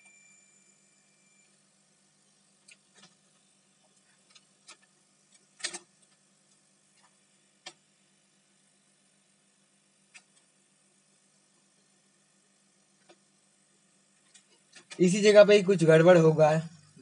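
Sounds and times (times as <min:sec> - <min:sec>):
faint clicks and taps: 0:13.0 - 0:13.3, 0:14.2 - 0:15.0.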